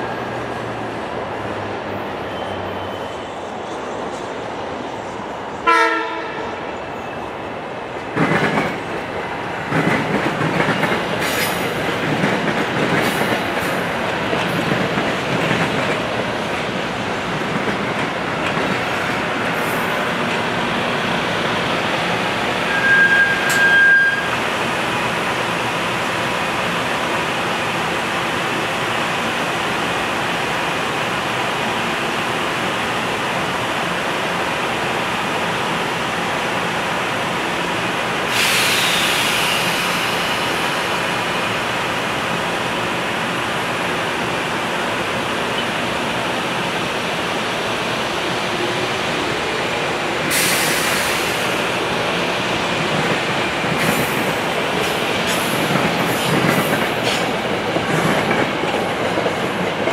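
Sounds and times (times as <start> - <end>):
train rumbling and clattering past: 0.0 - 34.0, 34.8 - 59.9
high squeal: 2.2 - 3.5, 22.6 - 24.4
train horn blast: 5.6 - 6.4.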